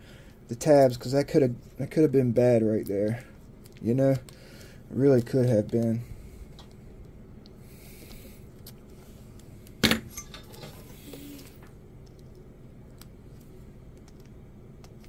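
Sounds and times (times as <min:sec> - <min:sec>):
background hiss: 0:10.6 - 0:11.8.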